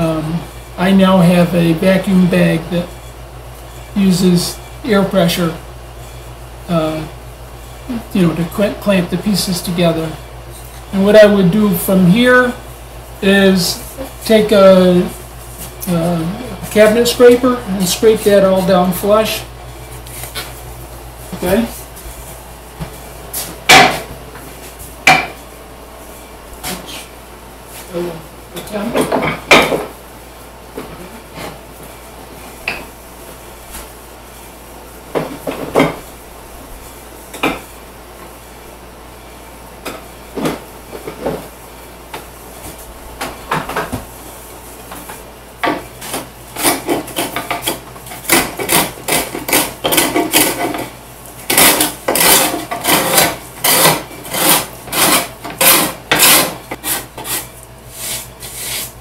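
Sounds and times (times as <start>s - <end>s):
cabinet scraper scraping wood: 45.7s - 59.0s.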